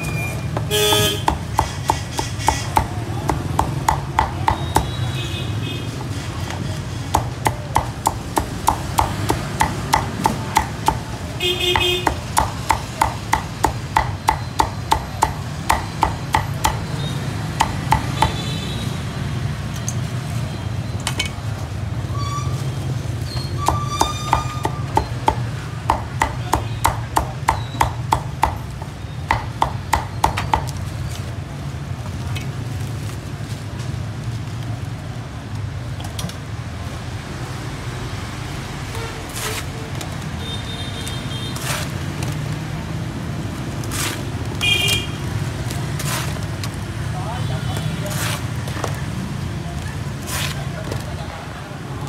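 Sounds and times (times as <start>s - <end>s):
cleaver chopping on wooden block: 0.6s - 5.1s, 7.1s - 16.9s, 17.5s - 18.4s, 23.6s - 30.8s.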